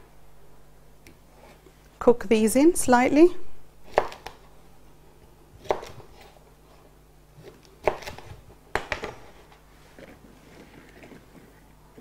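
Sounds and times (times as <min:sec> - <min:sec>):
knife chopping on cutting board: 0:03.9 - 0:04.4, 0:05.6 - 0:06.3, 0:07.4 - 0:09.4.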